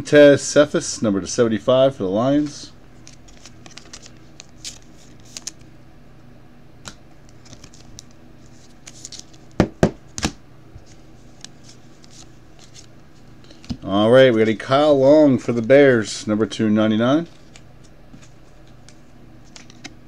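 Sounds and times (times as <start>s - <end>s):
cards and plastic sleeves crinkling: 3.0s - 5.7s, 7.3s - 9.6s, 10.8s - 14.8s, 17.2s - 20.0s.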